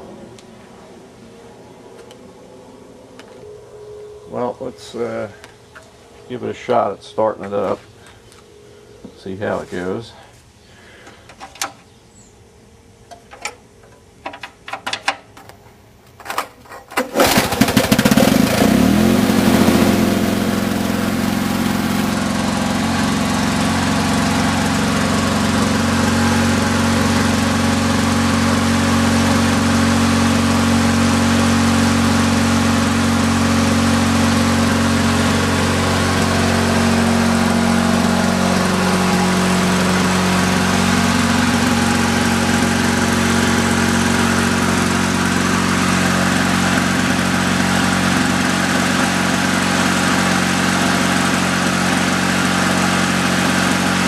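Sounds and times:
two-stroke lawnmower engine running: 16.2s - 54.0s.

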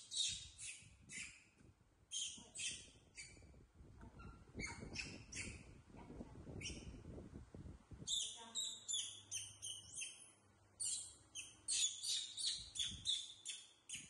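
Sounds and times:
baby monkeys squeaking: 0.0s - 1.4s, 2.1s - 3.5s, 4.2s - 5.7s, 8.1s - 14.0s.

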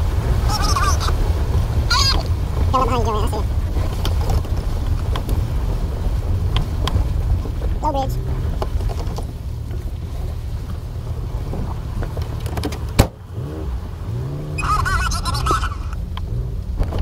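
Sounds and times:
car engine running: 0.0s - 17.0s
knocks and rattles: 3.5s - 5.6s, 6.3s - 13.2s.

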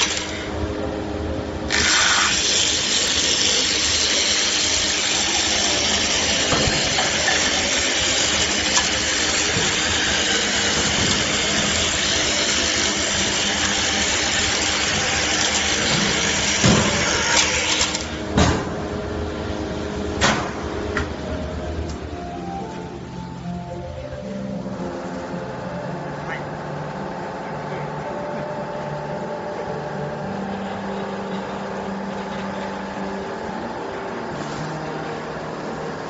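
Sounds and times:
cutter head cutting wood: 0.0s - 0.6s, 1.7s - 18.4s
milling machine motor humming: 0.0s - 36.0s.

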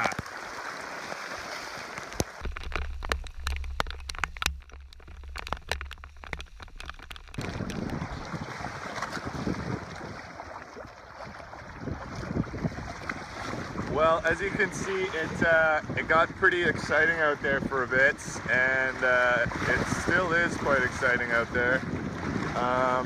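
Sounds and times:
waves splashing against hulls: 0.0s - 23.0s
drops ticking on camera: 2.0s - 8.1s
wind rumble on microphone: 2.4s - 23.0s.

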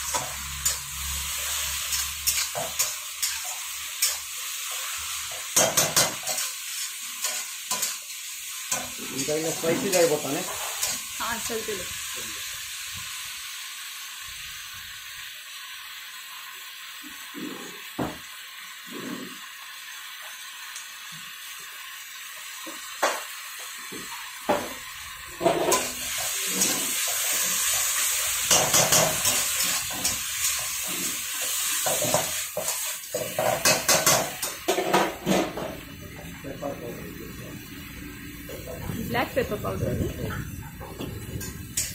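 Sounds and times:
metal spatula scraping wok: 0.0s - 11.6s, 25.3s - 35.8s
food sizzling in wok: 0.0s - 41.9s.

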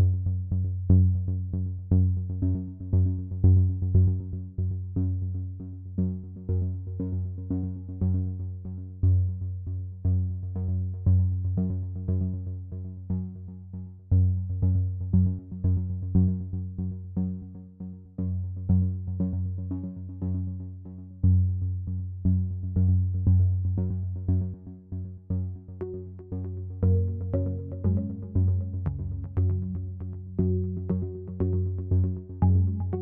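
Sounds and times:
electronic music with plucked synth: 22.5s - 33.0s.

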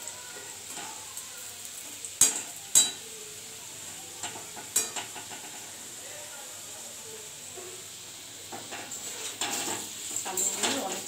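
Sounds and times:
potatoes sizzling in oil: 0.0s - 11.0s
spatula scraping a pan: 8.5s - 11.0s.

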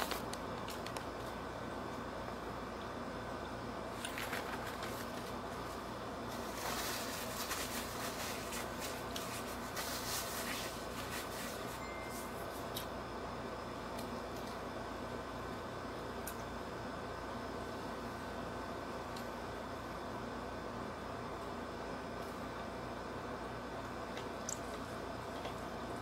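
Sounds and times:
steady low hum: 0.0s - 26.0s
paper napkin rustling and crumpling: 3.9s - 12.7s.

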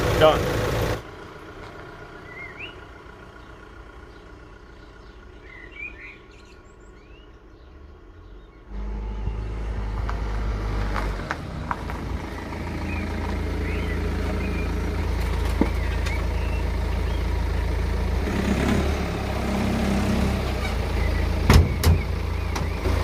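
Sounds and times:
small birds chirping: 1.2s - 23.0s
loud low rumble: 8.7s - 20.4s.

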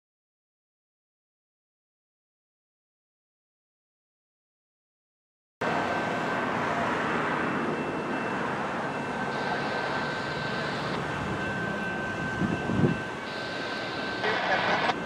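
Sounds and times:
distant vehicle rumble: 5.6s - 15.0s
faint high whine: 9.0s - 15.0s.

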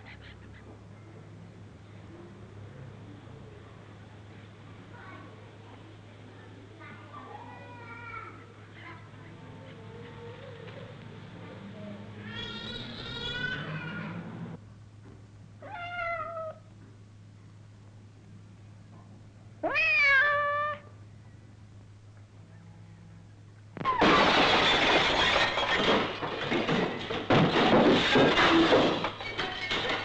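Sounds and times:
cat meowing: 15.6s - 16.6s, 19.6s - 20.9s
window glass shattering: 23.8s - 30.0s.

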